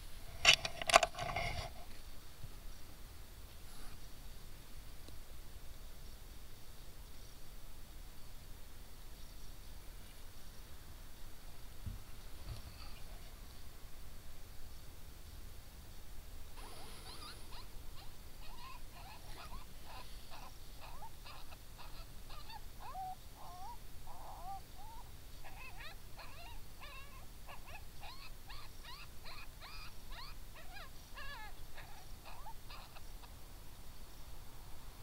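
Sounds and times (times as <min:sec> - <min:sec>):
coyotes yipping and howling: 0:16.6 - 0:33.4.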